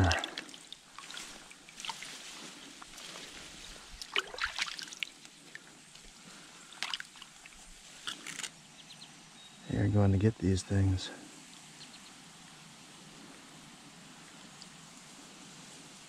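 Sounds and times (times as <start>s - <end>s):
small water splashes: 0.0s - 3.2s, 3.8s - 5.7s, 6.6s - 8.2s
stream water trickling: 0.0s - 8.2s, 14.2s - 15.0s.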